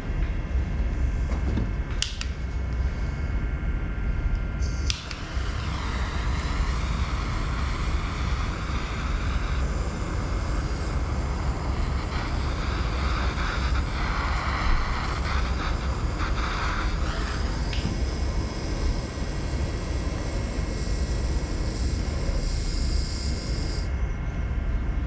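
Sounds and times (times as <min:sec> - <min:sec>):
propane torch roaring: 0:00.0 - 0:25.0
torch igniter click: 0:02.0 - 0:02.4, 0:04.8 - 0:05.4, 0:17.3 - 0:18.0.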